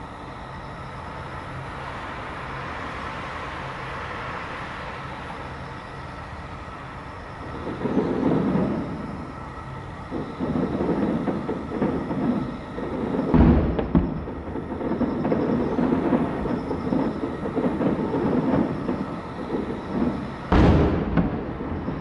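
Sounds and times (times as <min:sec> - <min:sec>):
distant fireworks rumbling: 0:01.9 - 0:22.0
heavy firework booms: 0:07.5 - 0:09.2, 0:10.1 - 0:22.0.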